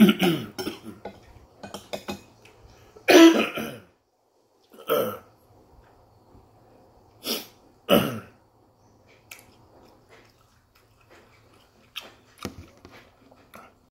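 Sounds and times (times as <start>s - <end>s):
man gulping or belching: 0.0s - 1.2s, 4.7s - 5.3s, 7.9s - 8.4s
chewing mouth clicks and smacks: 9.1s - 13.8s.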